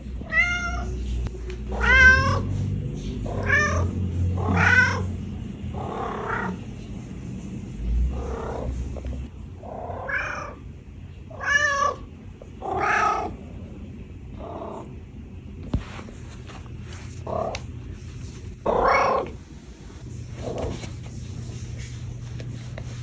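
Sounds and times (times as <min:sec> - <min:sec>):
cat purring: 0:00.0 - 0:10.7, 0:11.4 - 0:15.0
cat trilling meows: 0:00.2 - 0:01.0, 0:01.7 - 0:02.5, 0:03.3 - 0:05.1, 0:11.3 - 0:13.3.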